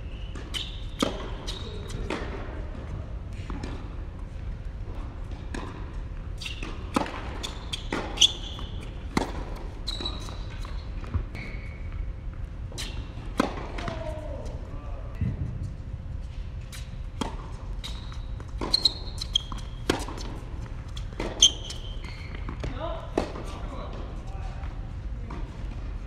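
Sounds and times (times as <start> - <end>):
shoe squeaks on court: 0.1 - 2.1, 6.4 - 13.2, 17.7 - 22.7
tennis ball on racket and court: 0.3 - 14.6, 16.6 - 24.1.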